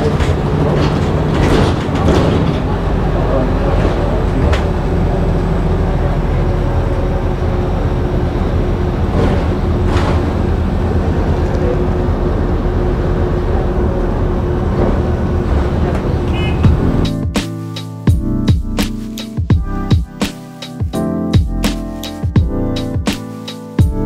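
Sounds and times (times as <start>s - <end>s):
bus engine and road rumble: 0.0s - 17.4s.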